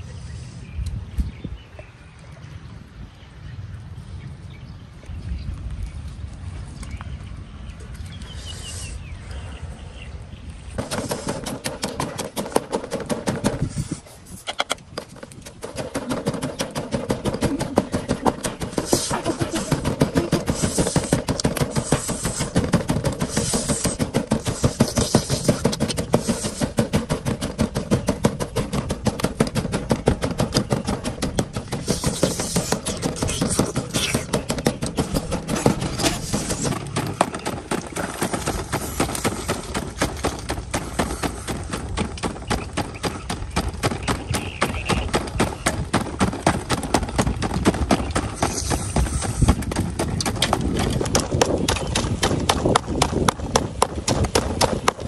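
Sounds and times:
wooden pestle pounding in mortar: 0:47.2 - 0:55.0.

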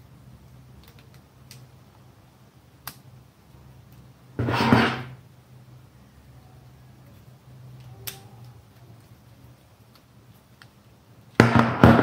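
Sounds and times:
rustling scrape: 0:04.4 - 0:05.2.

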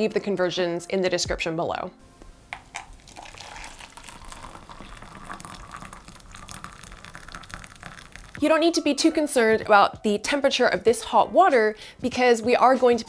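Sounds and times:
water pouring into a jug: 0:02.6 - 0:08.4.

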